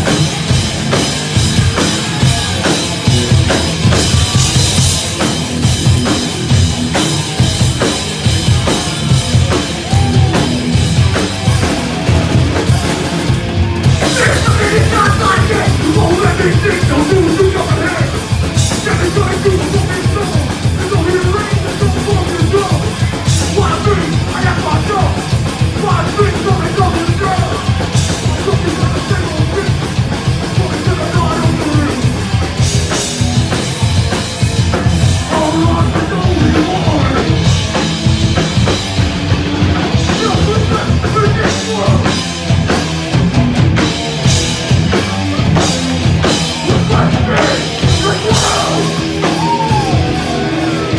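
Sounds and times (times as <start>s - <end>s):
punk band playing live: 0.0s - 50.9s
vocalist yelling: 14.0s - 18.2s, 46.7s - 50.9s.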